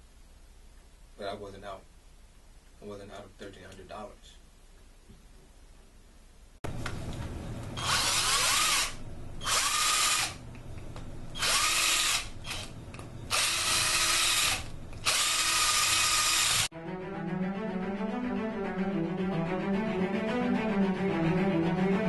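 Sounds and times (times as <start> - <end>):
power tool grinding metal: 13.4 - 16.7.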